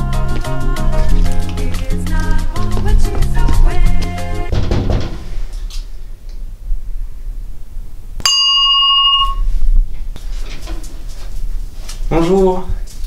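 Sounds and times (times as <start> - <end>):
background music: 0.0 - 4.6
electronic doorbell ding: 8.2 - 9.5.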